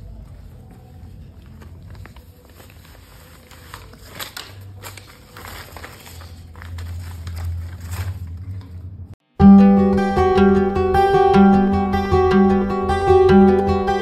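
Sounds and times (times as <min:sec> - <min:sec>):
rustling handling noise: 0:00.0 - 0:09.1
foil paper crinkling: 0:00.1 - 0:08.8.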